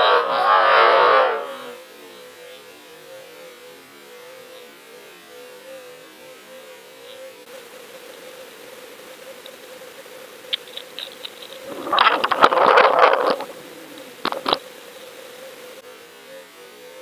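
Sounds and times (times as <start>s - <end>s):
faint steady hum: 0.0s - 17.0s
crackling and rattling clatter: 10.6s - 14.6s.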